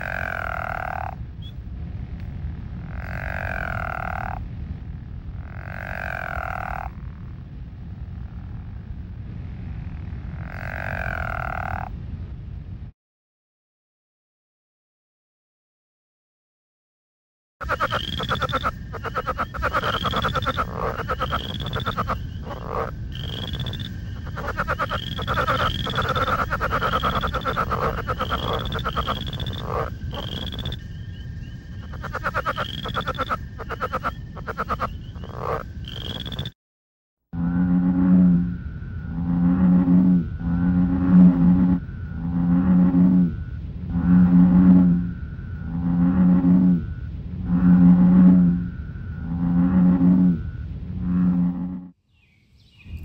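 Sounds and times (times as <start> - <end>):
frog croaking: 0.0 - 1.5, 2.8 - 4.4, 5.4 - 7.0, 10.2 - 11.9, 17.6 - 36.6, 37.4 - 52.0
low background rumble: 0.0 - 12.9, 17.6 - 36.4, 37.4 - 51.9.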